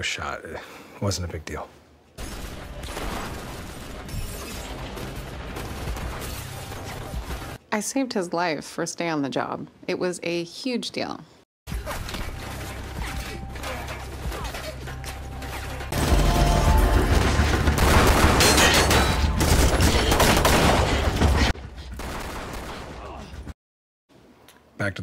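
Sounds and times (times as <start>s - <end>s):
gunfire: 15.9s - 23.2s.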